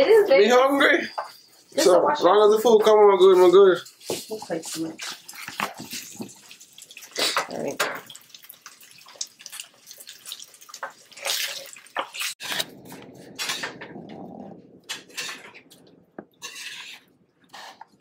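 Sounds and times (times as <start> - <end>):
chicken frying in a skillet: 2.3 - 12.7
utensil scraping a pan: 10.3 - 18.0.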